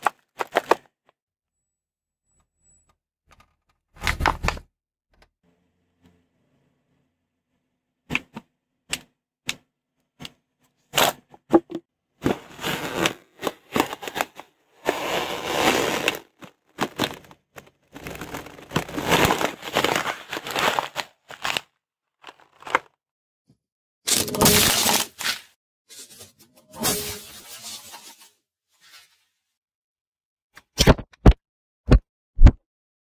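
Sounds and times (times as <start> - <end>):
packaging crunching under car tyre: 12.2 - 23.0.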